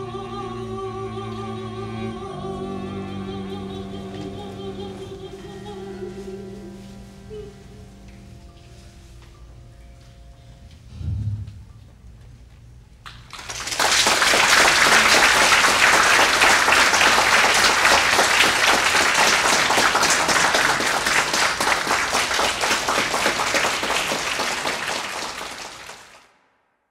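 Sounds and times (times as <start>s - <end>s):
audience applauding: 13.0s - 26.3s.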